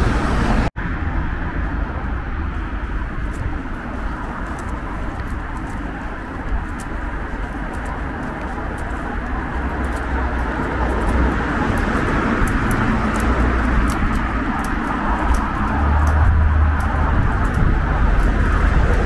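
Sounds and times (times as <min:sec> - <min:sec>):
road traffic passing: 0:00.0 - 0:19.0.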